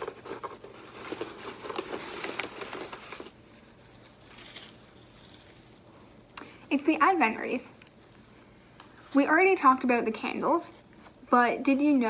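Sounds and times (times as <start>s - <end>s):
rustling and crinkling: 0.0s - 12.0s.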